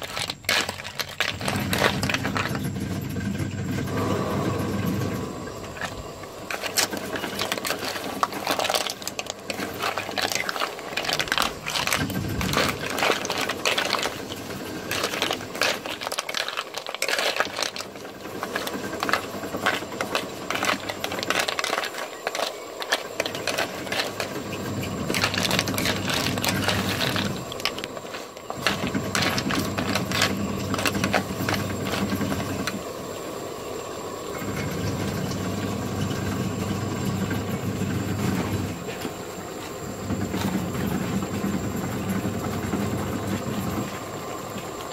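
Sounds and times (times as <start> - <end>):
shells rattling in metal wok: 0.0 - 3.0, 5.7 - 32.8
steady low hum: 0.0 - 44.9
sizzling: 3.5 - 37.1.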